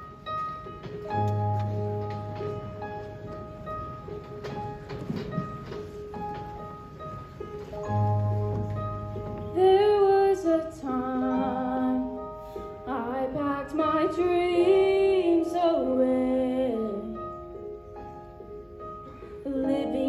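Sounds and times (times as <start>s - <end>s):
woman singing a slow ballad: 9.5s - 17.2s, 19.4s - 20.0s.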